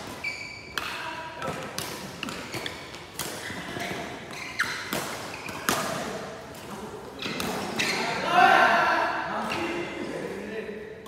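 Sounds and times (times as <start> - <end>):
rackets hitting shuttlecock: 0.0 - 8.1.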